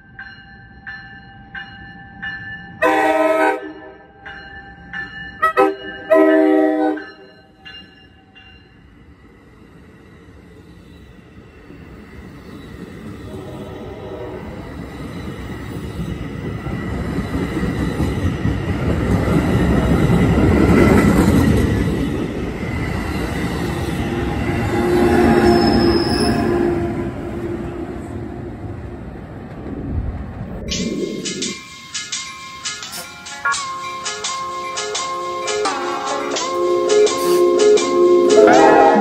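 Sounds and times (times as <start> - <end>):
train rolling past on rails: 0.0 - 39.0
train horn blasts: 2.8 - 4.1, 5.4 - 7.3, 13.3 - 14.8, 24.7 - 28.4, 36.2 - 39.0.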